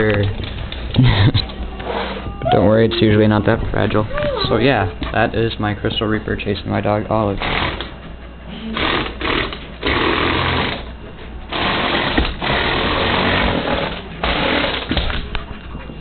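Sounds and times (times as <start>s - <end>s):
toy motors and gears whirring: 7.3s - 10.9s.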